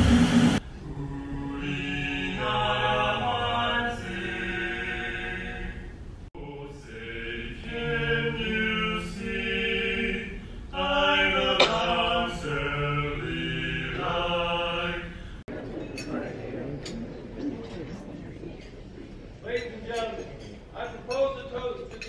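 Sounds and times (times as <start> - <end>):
anthem sung in long notes: 0.0 - 15.5.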